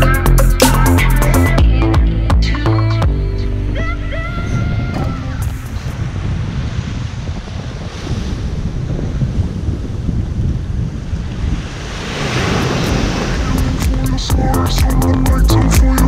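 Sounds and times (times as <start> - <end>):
wind rumbling on microphone: 3.1 - 16.0
small waves breaking on beach: 4.2 - 13.8.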